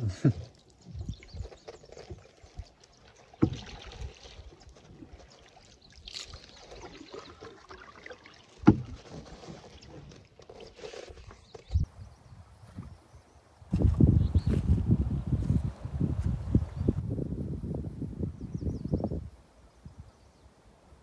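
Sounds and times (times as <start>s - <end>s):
paddle swishing through water: 0.0s - 11.9s
paddle knocking against canoe: 3.4s - 4.1s, 8.6s - 10.2s.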